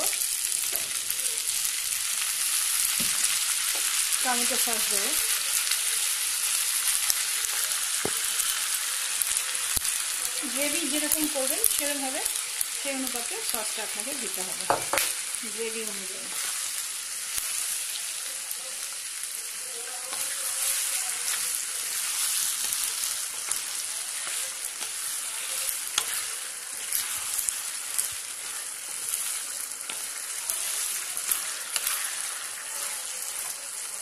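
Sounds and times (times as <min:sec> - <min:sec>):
vegetables sizzling in a frying pan: 0:00.0 - 0:34.0
stirring scraping the pan: 0:16.1 - 0:18.5, 0:19.4 - 0:34.0.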